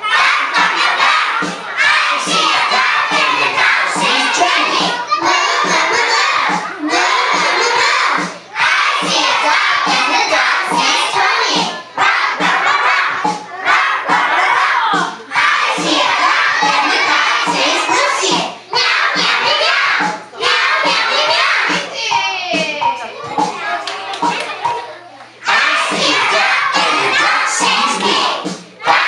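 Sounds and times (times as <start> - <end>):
low regular beat: 0.0 - 24.8, 25.5 - 29.0
children shouting and chanting: 0.0 - 29.0.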